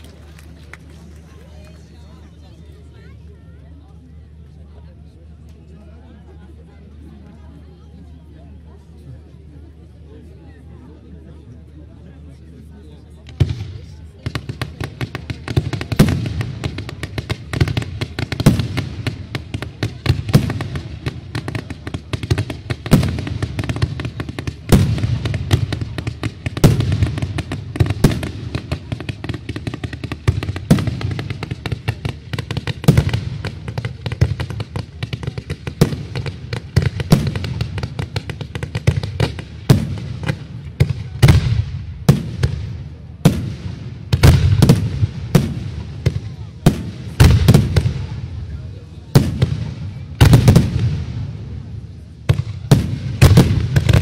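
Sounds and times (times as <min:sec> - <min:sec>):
fireworks bangs and crackling: 0:13.0 - 0:54.0.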